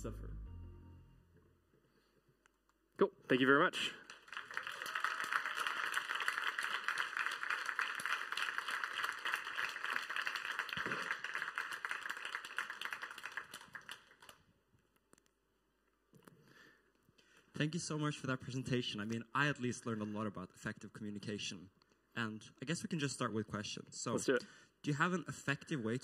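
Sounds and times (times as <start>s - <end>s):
audience applauding: 4.0s - 14.5s.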